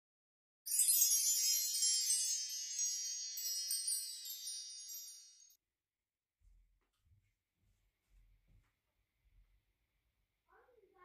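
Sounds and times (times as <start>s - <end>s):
wind chimes tinkling: 0.7s - 5.6s.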